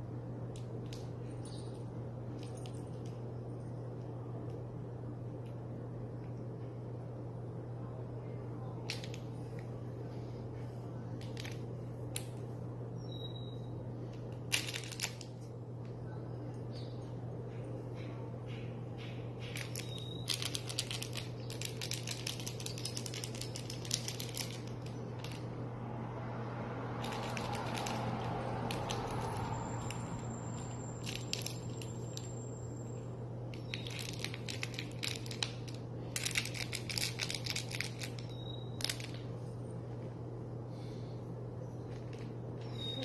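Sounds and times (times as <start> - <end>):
low hum: 0.0 - 43.0.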